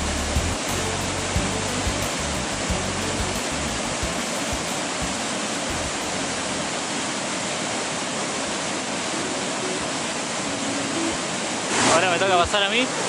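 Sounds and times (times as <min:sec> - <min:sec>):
river rushing over rocks: 0:00.0 - 0:13.0.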